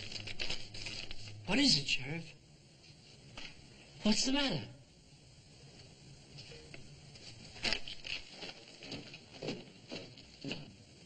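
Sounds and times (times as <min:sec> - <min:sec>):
quick footsteps: 0:08.2 - 0:10.8.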